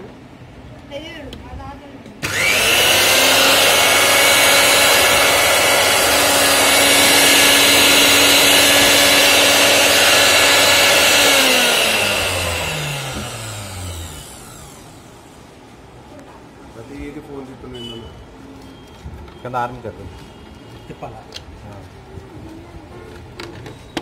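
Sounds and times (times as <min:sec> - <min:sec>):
mixer grinder motor whining: 0:02.2 - 0:15.2.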